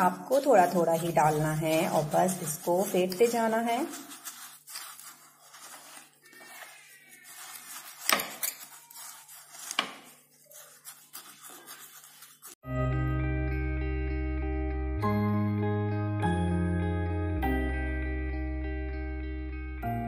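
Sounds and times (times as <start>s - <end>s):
fork scraping and tapping glass: 7.8s - 9.0s.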